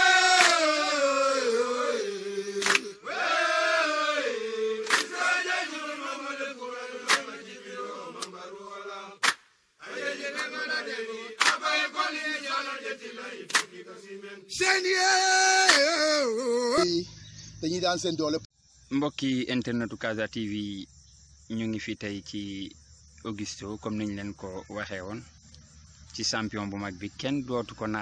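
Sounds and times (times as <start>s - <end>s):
sharp hand claps: 0.0s - 0.8s, 2.6s - 2.9s, 4.8s - 5.2s, 7.1s - 7.4s, 9.2s - 9.5s, 10.3s - 10.6s, 11.4s - 11.8s, 13.5s - 13.8s, 15.6s - 16.0s
men chanting together: 0.0s - 16.8s.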